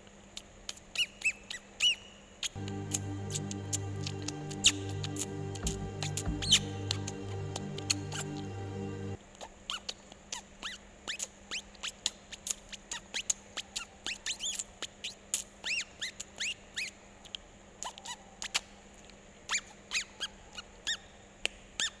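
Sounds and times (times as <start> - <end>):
faint steady hum: 2.6 - 9.2.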